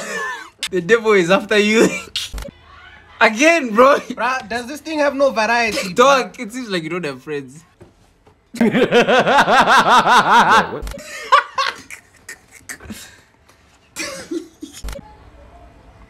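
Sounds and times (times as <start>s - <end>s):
person laughing: 8.6s - 13.2s.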